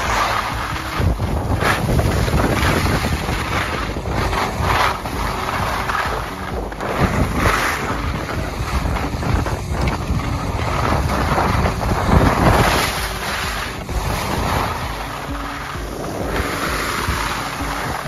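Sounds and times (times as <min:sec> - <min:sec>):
skis scraping over snow: 0:00.0 - 0:18.0
wind buffeting microphone: 0:00.0 - 0:18.0.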